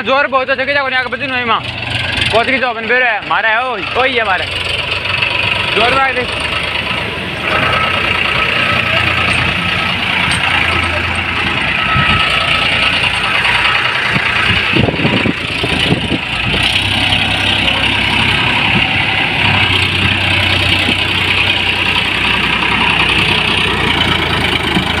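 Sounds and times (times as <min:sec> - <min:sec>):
tractor diesel engine running: 0:00.0 - 0:25.0.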